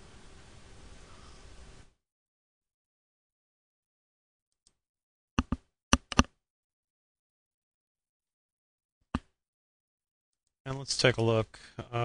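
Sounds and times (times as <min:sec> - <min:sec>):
mouse button clicks: 0:05.4 - 0:06.3.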